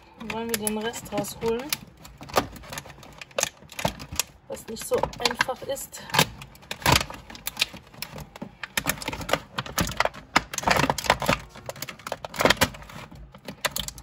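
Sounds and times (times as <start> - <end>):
plastic blister tray crackling: 0.0 - 14.0.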